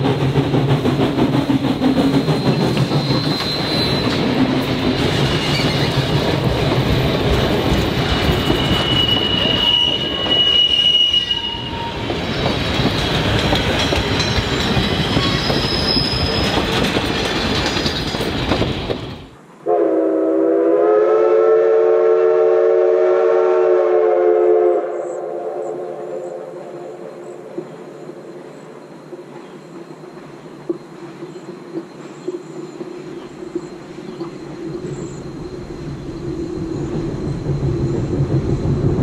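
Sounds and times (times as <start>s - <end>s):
train wheels rumbling on rails: 0.0s - 19.4s, 26.6s - 39.0s
wheel squeals: 2.2s - 4.4s, 5.2s - 6.1s, 7.7s - 13.2s, 13.8s - 19.2s
steam whistle blast: 8.6s - 12.0s, 19.7s - 26.9s.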